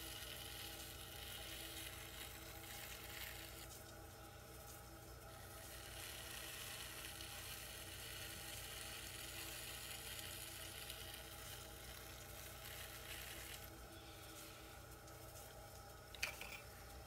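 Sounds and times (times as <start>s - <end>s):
potter's wheel motor hum: 0.0s - 17.0s.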